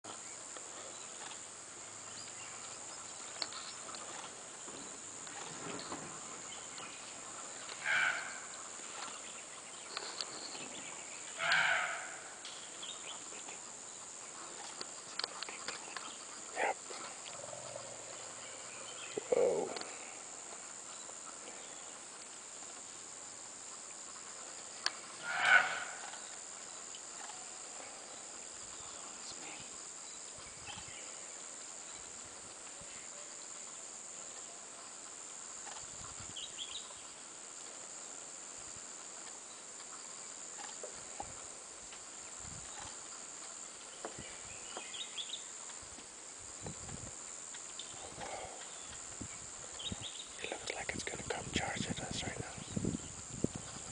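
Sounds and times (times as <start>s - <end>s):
outdoor hiss: 0.0s - 53.9s
loud animal call: 7.8s - 8.5s, 11.4s - 12.4s, 25.2s - 26.2s.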